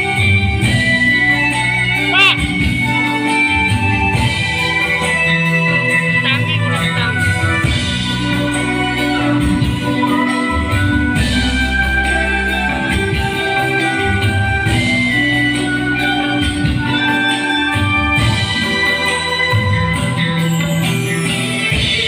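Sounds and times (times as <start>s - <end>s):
bass guitar: 0.0s - 22.0s
drums: 0.0s - 22.0s
electric guitar: 0.0s - 22.0s
keyboard chords: 0.0s - 22.0s.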